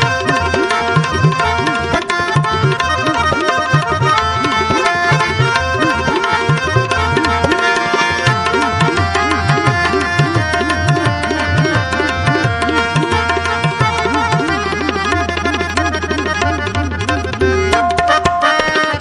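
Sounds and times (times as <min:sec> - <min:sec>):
harmonium notes: 0:00.0 - 0:19.0
tabla playing: 0:00.0 - 0:19.0.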